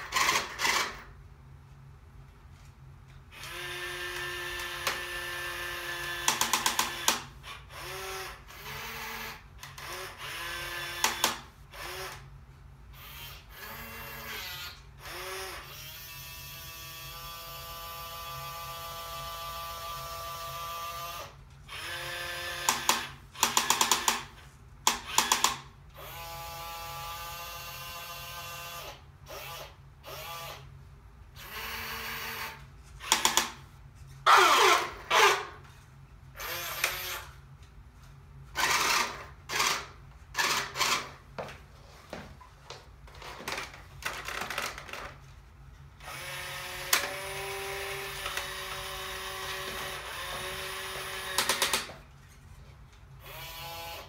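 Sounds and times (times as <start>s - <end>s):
toy electric motor whining: 0.0s - 1.1s, 3.3s - 12.3s, 12.9s - 24.2s, 24.9s - 30.7s, 31.4s - 33.6s, 34.2s - 35.6s, 36.4s - 37.4s, 38.5s - 41.1s, 46.0s - 51.9s, 53.2s - 54.0s.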